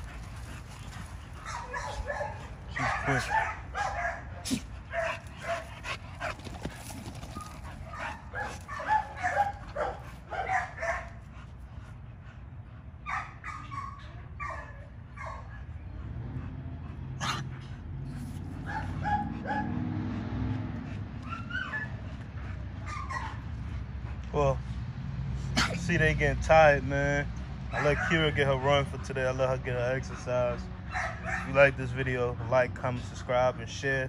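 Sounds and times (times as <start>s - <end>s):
dogs yipping barks: 0.9s - 11.2s, 13.0s - 15.9s, 17.2s - 20.2s, 20.8s - 23.8s, 27.7s - 28.4s, 30.8s - 31.6s.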